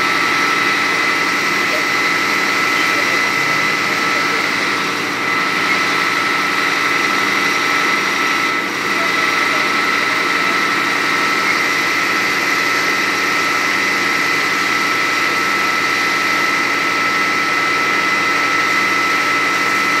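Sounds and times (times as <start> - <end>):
fire engine pump drone: 0.0 - 20.0
high pump whine: 0.0 - 20.0.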